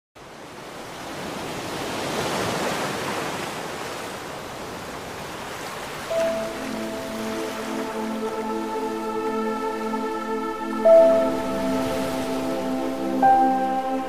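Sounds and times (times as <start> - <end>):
ocean wave washing in: 5.2 - 14.0
sustained music note: 6.1 - 9.7.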